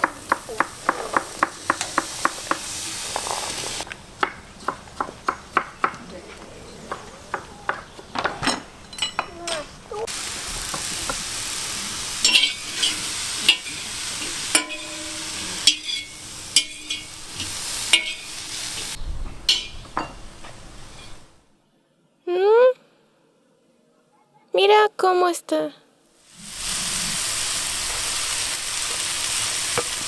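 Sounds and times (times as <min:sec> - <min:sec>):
sausage sizzling in a pan: 0:00.0 - 0:03.9, 0:10.0 - 0:19.7, 0:26.2 - 0:30.0
spatula scraping a pan: 0:12.2 - 0:19.0.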